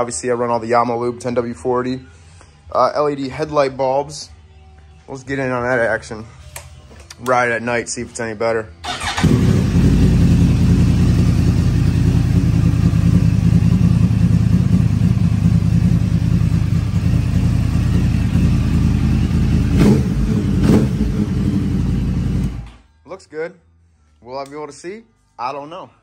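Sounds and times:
motorcycle engine idling: 8.9 - 22.7
engine revving blips: 16.9 - 22.8.

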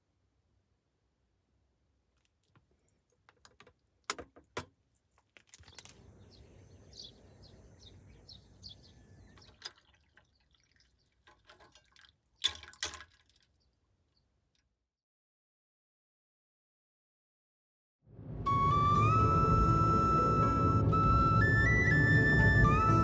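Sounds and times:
liquid pouring: 9.4 - 13.6
small drips: 9.4 - 14.6.

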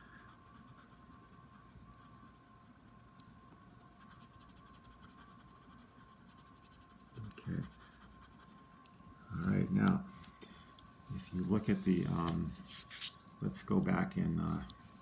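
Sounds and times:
coloured pencil scratching on paper: 0.0 - 2.4, 3.4 - 8.8, 11.0 - 13.2.

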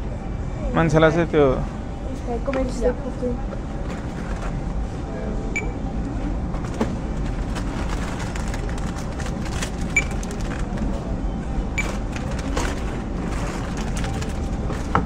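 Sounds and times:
low background hum: 0.0 - 15.0
barcode scanner beeps: 5.6 - 5.8, 9.9 - 10.2.

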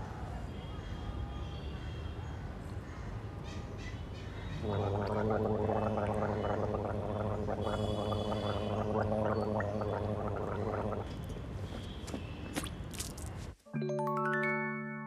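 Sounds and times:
man gargling: 4.6 - 11.2.

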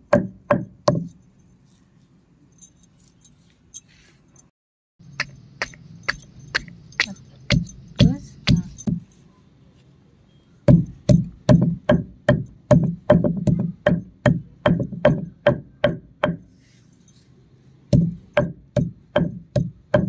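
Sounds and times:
stone pestle pounding on stone: 0.0 - 1.2, 5.2 - 9.1, 10.7 - 16.4, 17.9 - 20.0.

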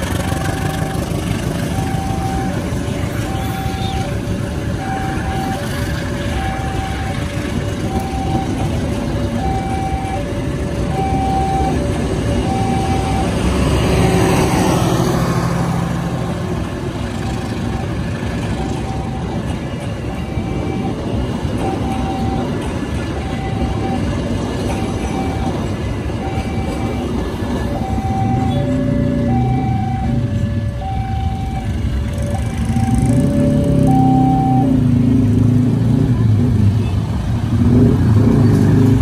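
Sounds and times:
train rumbling past on rails: 0.0 - 39.0
level crossing alarm two tones: 7.9 - 14.5, 20.1 - 35.0.

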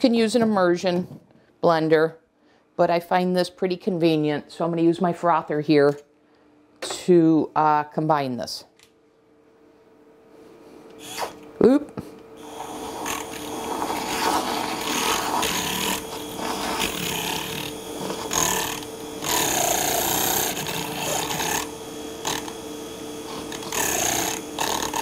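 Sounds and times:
milk frother motor whining: 10.9 - 11.6, 12.2 - 25.0
whisk whooshing in liquid: 12.8 - 18.6.

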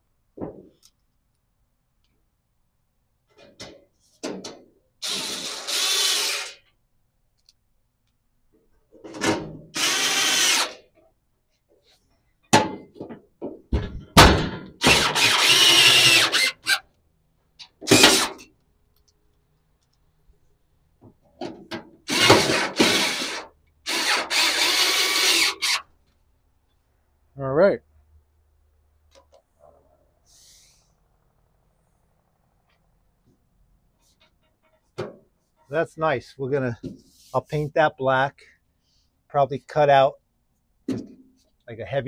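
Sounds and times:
cordless drill driving screws: 5.0 - 6.6, 9.8 - 10.8, 14.8 - 16.8, 17.8 - 18.4, 22.1 - 25.9.

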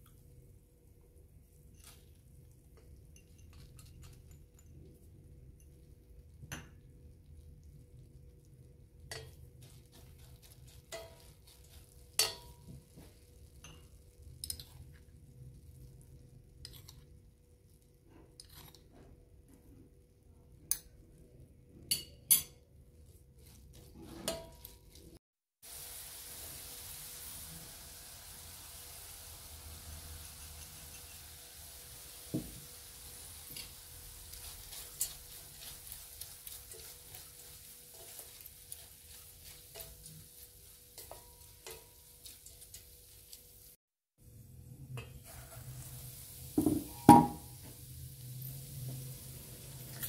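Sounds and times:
pan sizzling: 8.8 - 16.0, 23.4 - 50.0
metal spoon clinking on pan: 9.0 - 9.4, 10.9 - 11.4, 12.1 - 12.7, 13.6 - 14.8, 21.9 - 22.6, 30.4 - 31.3, 41.0 - 42.1.

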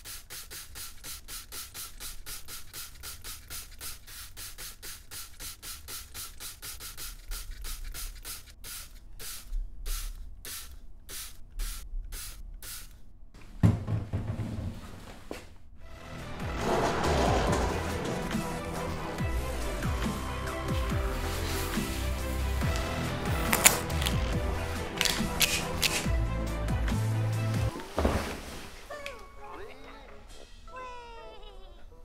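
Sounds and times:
wiping window glass: 16.1 - 26.2.

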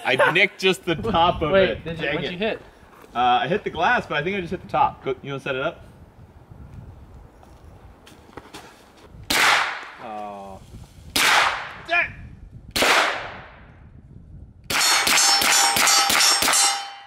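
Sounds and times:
rifle shots echoing: 9.3 - 10.0, 11.2 - 11.8, 12.8 - 13.6
metallic ring: 14.7 - 17.0.

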